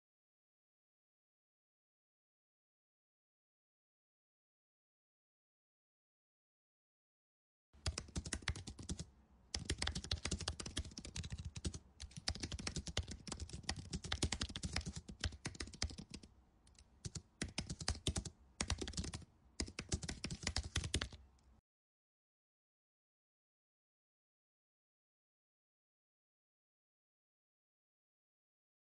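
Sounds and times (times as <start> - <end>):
rapid keyboard typing: 7.8 - 21.3.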